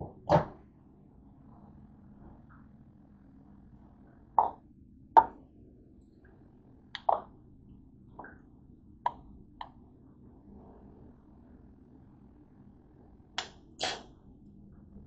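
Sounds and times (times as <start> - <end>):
wet mouth smacks while eating: 13.4 - 14.1.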